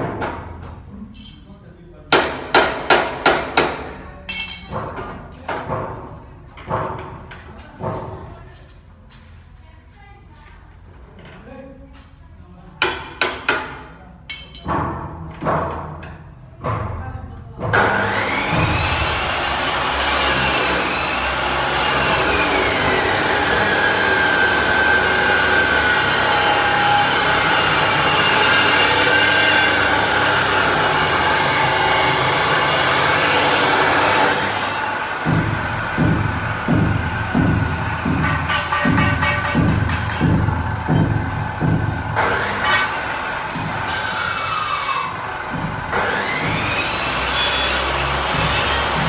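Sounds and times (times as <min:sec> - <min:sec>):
chop saw grinding through metal: 0:17.8 - 0:35.0, 0:42.2 - 0:45.3, 0:45.9 - 0:49.0
metal knocks: 0:35.3 - 0:43.0.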